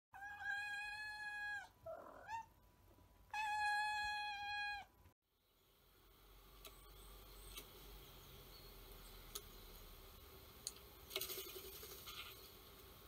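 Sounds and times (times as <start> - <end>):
cat meowing: 0.2 - 2.5, 3.3 - 4.9.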